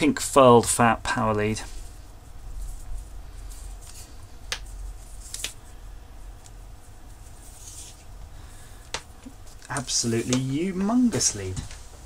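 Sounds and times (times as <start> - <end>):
soft rustle of cable: 0.6 - 12.0.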